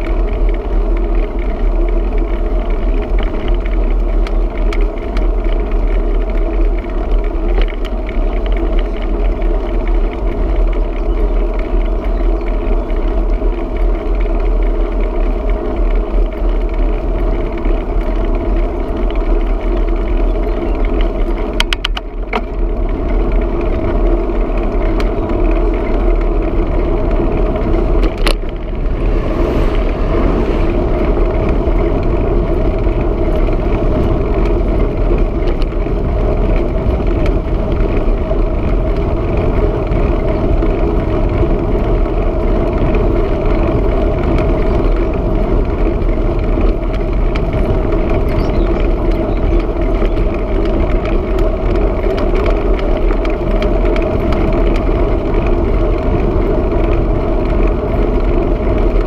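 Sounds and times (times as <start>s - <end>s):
constant hum: 0.0s - 59.0s
wind and road rumble: 0.0s - 59.0s.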